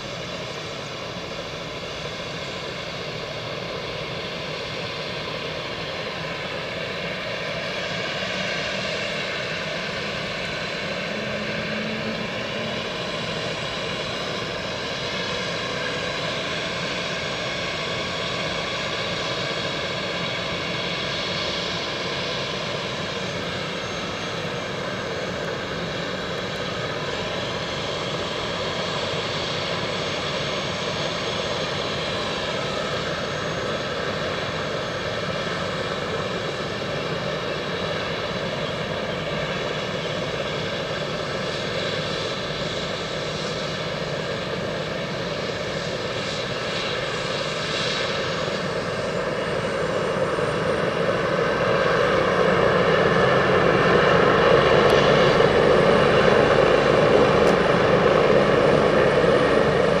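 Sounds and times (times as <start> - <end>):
helicopter rotor and engine rush: 0.0 - 60.0
high turbine whine: 0.0 - 60.0.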